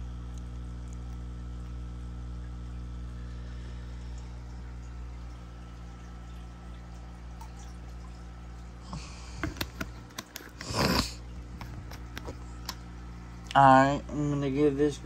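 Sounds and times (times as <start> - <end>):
low hum: 0.0 - 15.0
liquid splashing into water: 2.4 - 13.5.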